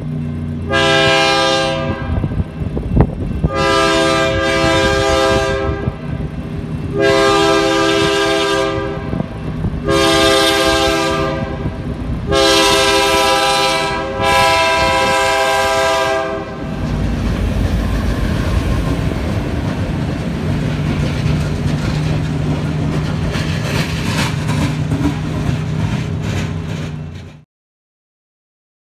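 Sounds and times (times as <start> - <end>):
locomotive engine running: 0.0 - 27.4
locomotive air horn blasts: 0.7 - 2.4, 3.4 - 6.2, 6.9 - 16.8
wheels clattering over rails: 14.8 - 27.4.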